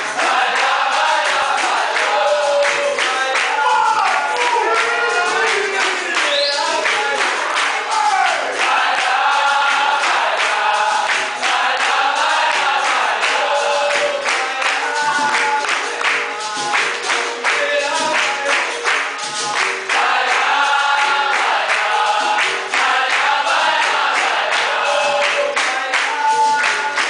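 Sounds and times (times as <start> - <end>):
group singing together: 0.0 - 27.0
people clapping in time: 0.0 - 27.0
hand drum beating: 12.4 - 20.4.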